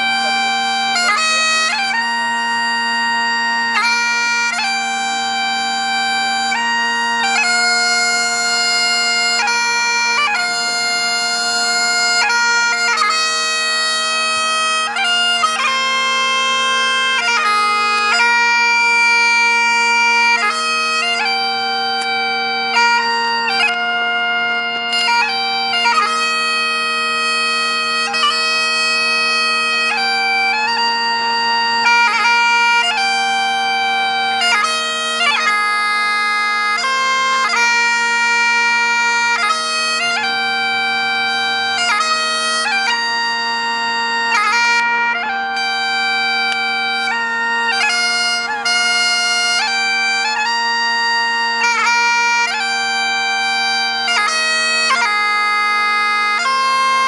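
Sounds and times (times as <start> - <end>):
bagpipe melody with drones: 0.0 - 57.0.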